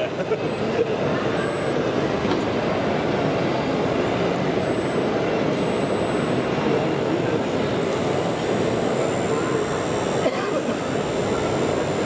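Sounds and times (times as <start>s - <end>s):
crowded hall background noise: 0.0s - 12.0s
faint high whine: 0.5s - 2.0s, 4.5s - 12.0s.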